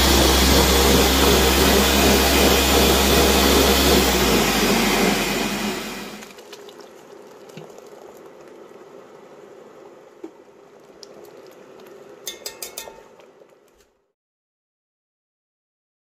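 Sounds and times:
sauce bubbling in a pot: 6.2s - 13.7s
metal spoon clicking: 12.3s - 13.0s.

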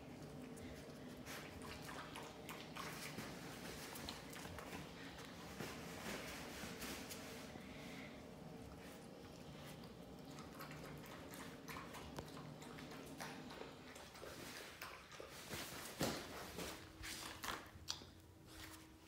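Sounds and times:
low steady hum: 0.0s - 19.0s
scuffling on concrete floor: 15.4s - 17.7s.

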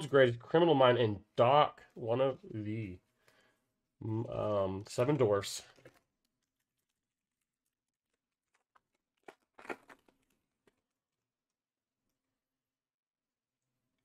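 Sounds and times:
foil pack crinkling and tearing: 6.8s - 10.8s.

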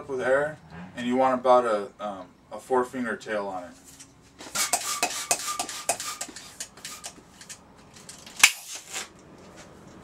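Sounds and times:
balloon pump hissing strokes: 4.4s - 7.2s.

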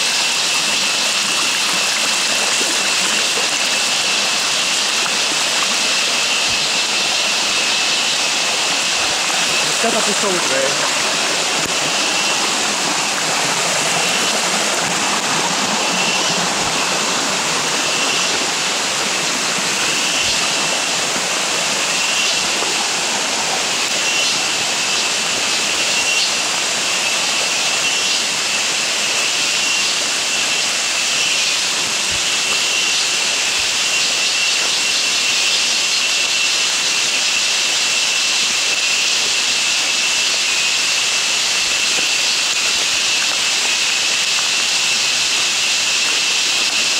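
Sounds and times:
rain and running water: 0.0s - 46.9s
high-pitched drone: 0.2s - 28.3s.

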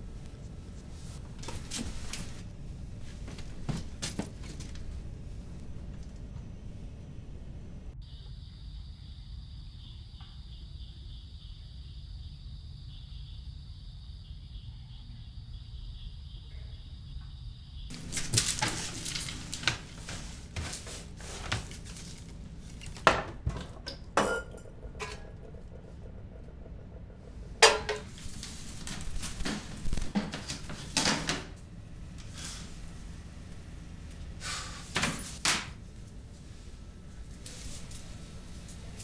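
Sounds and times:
dishes and cutlery clattering: 23.0s - 25.4s, 27.6s - 28.2s.

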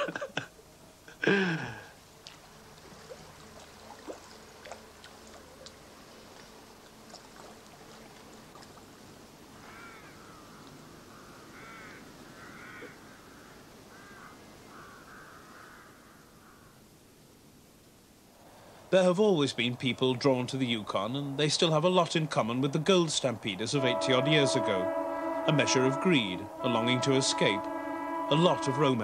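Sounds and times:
faint hiss: 0.0s - 29.0s
crow cawing: 9.6s - 16.8s.

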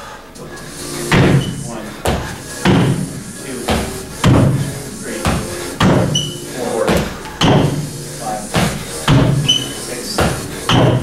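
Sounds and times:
feet thudding on box and floor: 1.1s - 7.9s, 8.5s - 11.0s
brief high squeak: 9.4s - 9.8s.

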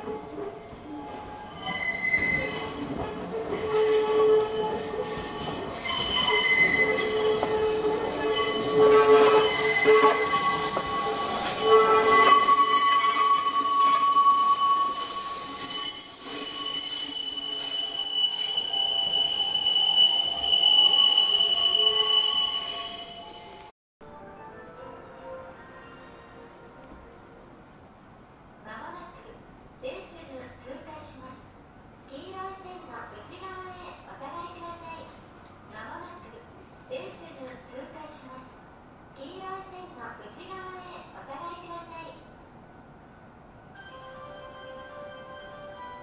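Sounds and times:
train wheels squealing on rails: 0.8s - 23.7s.

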